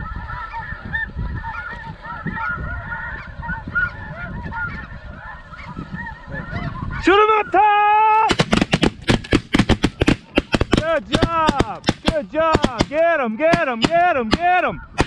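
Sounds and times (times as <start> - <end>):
snow geese calling: 0.0 - 15.0
man yelling: 7.0 - 8.3, 10.8 - 14.8
shotgun volley: 8.3 - 15.0.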